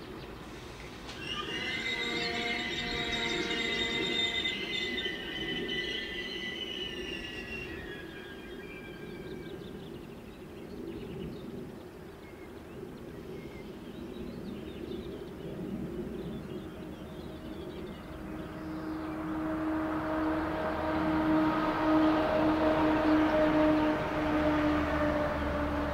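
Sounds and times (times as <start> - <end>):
train low rumble: 0.0 - 25.9
train wheel squeal: 0.5 - 9.8.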